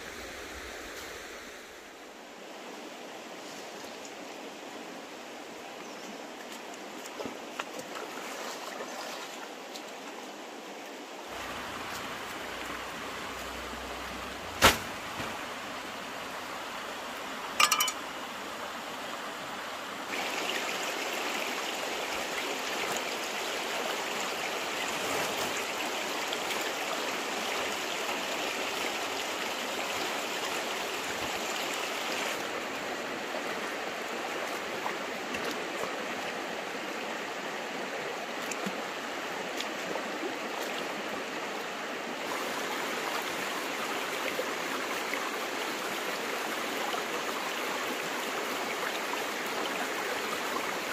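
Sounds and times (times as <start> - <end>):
stream water flowing: 0.0 - 50.9
sharp knock: 14.6 - 14.9.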